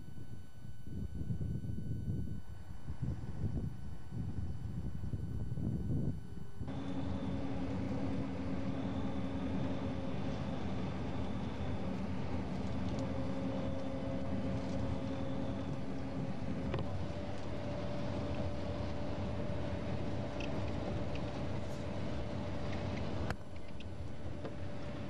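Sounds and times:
engine drone: 0.0s - 25.0s
road noise: 6.7s - 18.3s.

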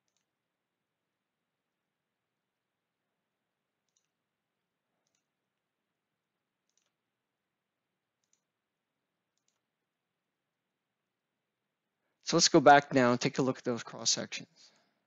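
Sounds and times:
faint computer mouse clicks: 3.8s - 4.2s, 5.0s - 5.3s, 6.6s - 7.0s, 8.2s - 8.5s, 9.4s - 9.7s.

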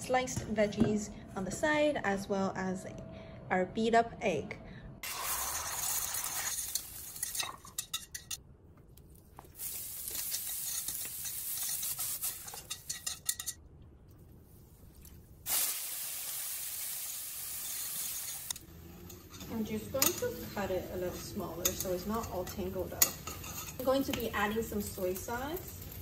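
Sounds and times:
food sizzling in a pan: 5.0s - 7.6s, 9.6s - 13.0s, 15.5s - 26.0s
utensils clinking against pan: 5.5s - 8.4s, 10.0s - 13.6s, 17.6s - 26.0s.

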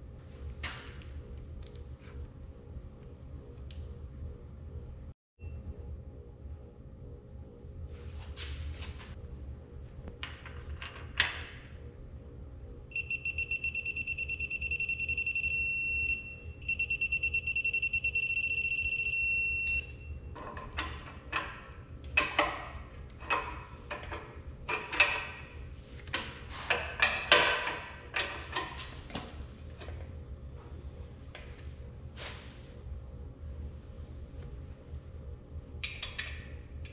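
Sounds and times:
torque wrench beeping: 12.9s - 20.1s.

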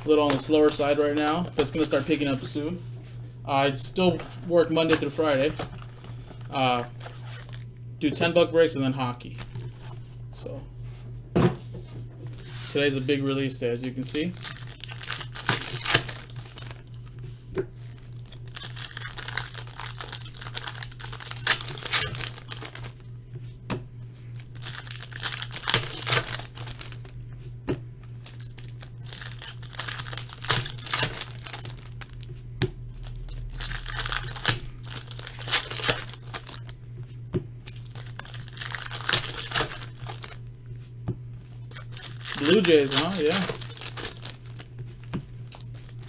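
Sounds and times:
foil wrappers crinkling and tearing: 0.0s - 2.8s, 4.2s - 7.7s, 12.3s - 17.2s, 17.8s - 23.0s, 24.2s - 27.2s, 28.0s - 32.3s, 32.9s - 36.8s, 37.6s - 40.5s, 41.4s - 46.0s
low hum: 0.0s - 46.0s.

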